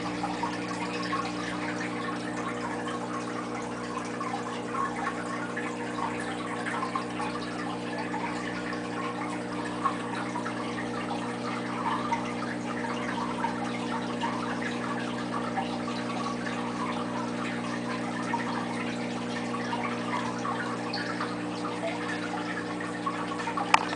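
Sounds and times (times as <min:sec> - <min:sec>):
low electrical hum: 0:00.0 - 0:23.9
water trickling: 0:00.0 - 0:23.9.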